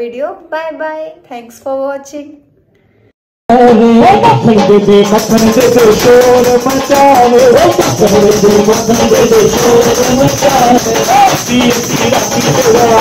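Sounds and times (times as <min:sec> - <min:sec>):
person singing into a microphone: 0:03.5 - 0:13.0
rattling hand percussion: 0:03.6 - 0:13.0.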